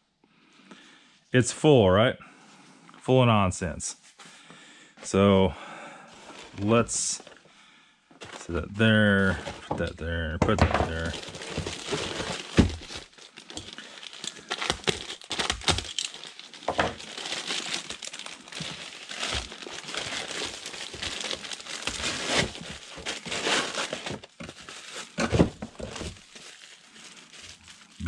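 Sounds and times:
packaging crinkling and rustling: 0:06.1 - 0:07.4, 0:08.2 - 0:08.5, 0:09.1 - 0:09.7, 0:10.8 - 0:28.0.

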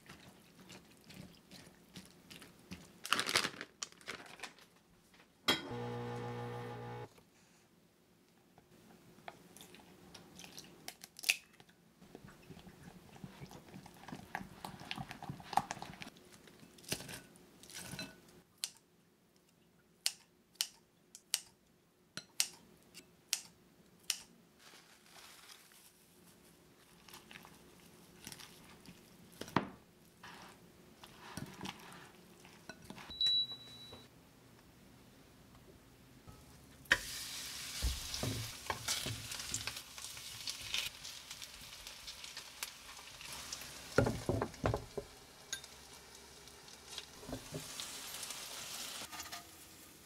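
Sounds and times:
short high beep: 0:33.1 - 0:34.1.

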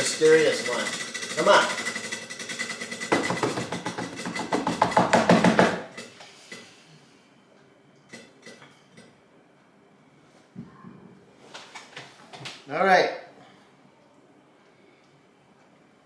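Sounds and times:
hands drumming on tabletop: 0:03.1 - 0:05.8.

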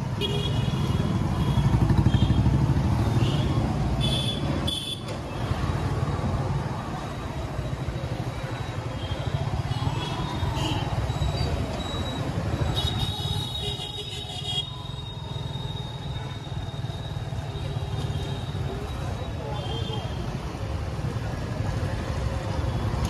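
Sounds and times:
street traffic: 0:00.0 - 0:23.0.

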